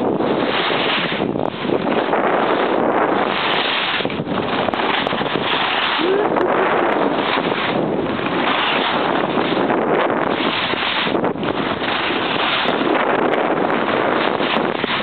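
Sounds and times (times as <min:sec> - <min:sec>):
loud wind rush on microphone: 0:00.0 - 0:15.0
skis sliding on packed snow: 0:00.0 - 0:15.0.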